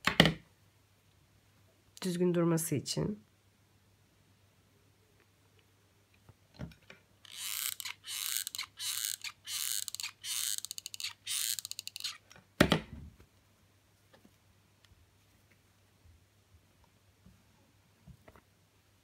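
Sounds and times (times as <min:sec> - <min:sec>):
hot glue gun rasping: 0:07.3 - 0:12.2.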